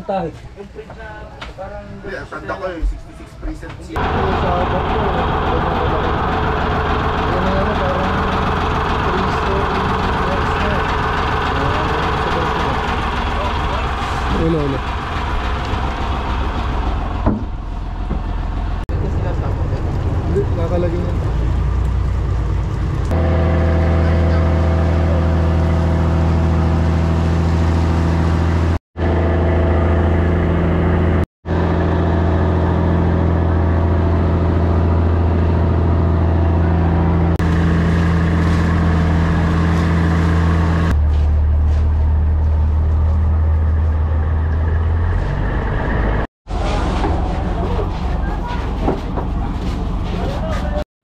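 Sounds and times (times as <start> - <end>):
motorboat engine droning: 4.0 - 50.8.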